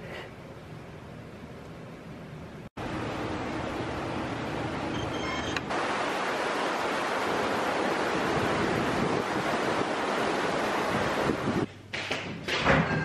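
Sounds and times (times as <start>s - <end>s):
river water rushing: 5.2s - 11.6s.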